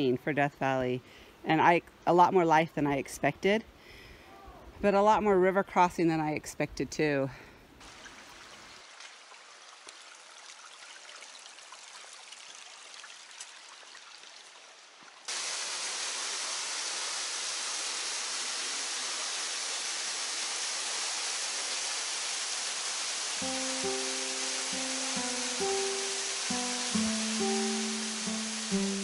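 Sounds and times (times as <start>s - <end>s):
creek running water: 7.8s - 29.0s
waterfall pouring into pool: 7.8s - 29.0s.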